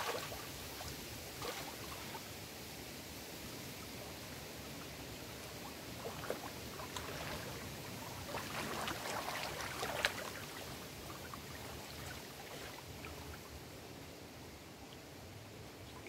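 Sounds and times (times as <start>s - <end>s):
waves lapping against rocks: 4.8s - 13.5s.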